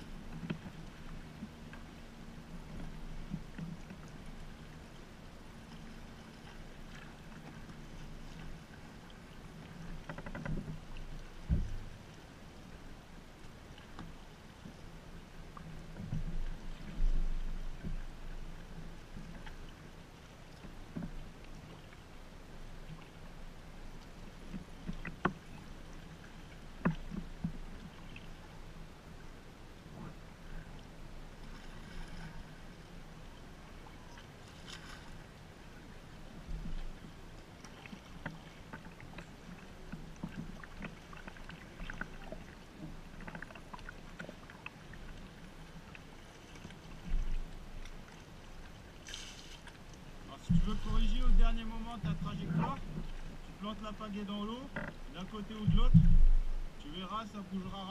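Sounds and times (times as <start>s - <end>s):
paddle splashes and drips: 0.0s - 57.9s
water lapping around kayak: 0.0s - 57.9s
low rumble: 50.4s - 53.4s, 55.0s - 56.9s.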